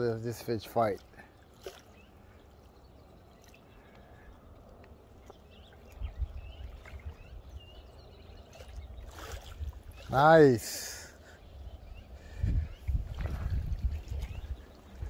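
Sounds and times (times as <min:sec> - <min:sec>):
faint bird chirps: 0:01.6 - 0:15.0
wind rumble on microphone: 0:05.5 - 0:10.2, 0:11.4 - 0:15.0.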